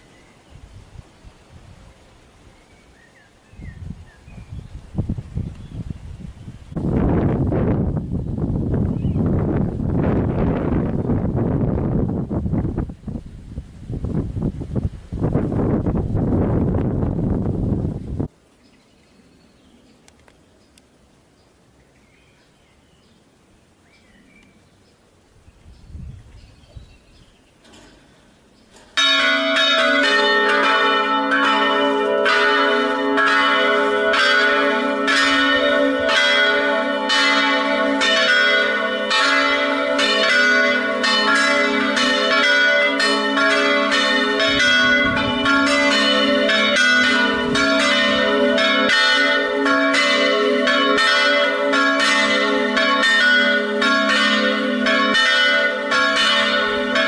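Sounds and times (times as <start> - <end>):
church bells pealing: 29.0 - 57.0.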